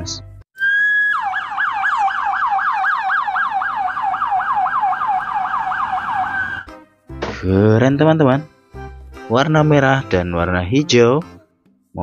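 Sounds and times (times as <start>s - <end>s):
ambulance siren yelping: 0.6s - 6.8s.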